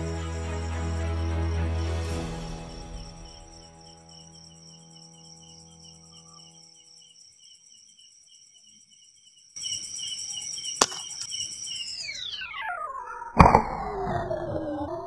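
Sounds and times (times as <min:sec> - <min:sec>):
night insects chirping: 0:00.0 - 0:13.3.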